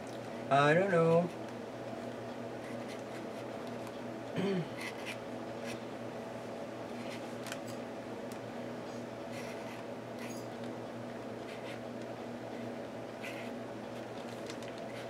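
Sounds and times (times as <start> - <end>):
steady low hum: 0.0 - 15.0
marker scratching on paper: 4.8 - 5.8, 9.3 - 10.4, 11.5 - 11.8, 13.2 - 13.5.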